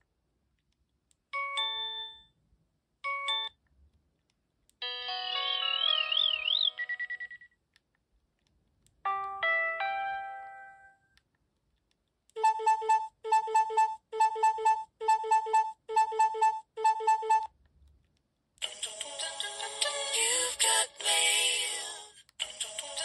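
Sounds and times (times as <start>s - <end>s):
electronic beep pattern: 12.4s - 17.5s.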